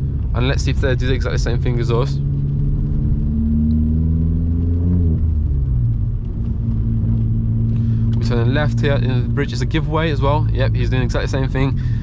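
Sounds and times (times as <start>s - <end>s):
car engine and road drone: 0.0s - 12.0s.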